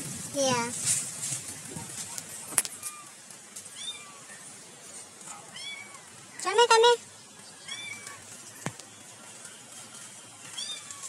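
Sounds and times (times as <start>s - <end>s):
cat meow: 2.8s - 4.4s, 5.5s - 6.1s, 7.6s - 8.2s, 10.5s - 11.0s.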